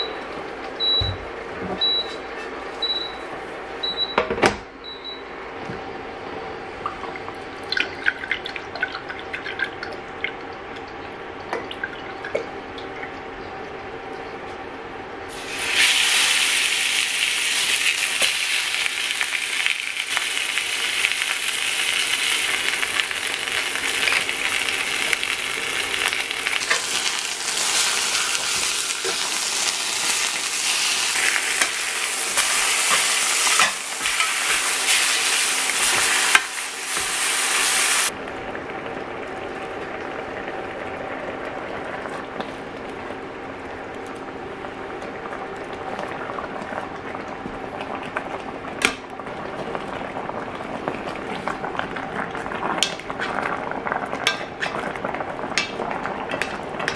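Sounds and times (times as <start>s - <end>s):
ribs sizzling in hot oil: 15.3s - 38.1s.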